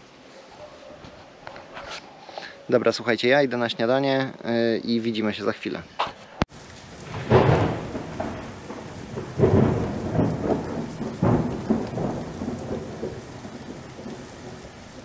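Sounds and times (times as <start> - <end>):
heavy rain: 6.5 - 15.0
low rumbling surges: 6.6 - 15.0.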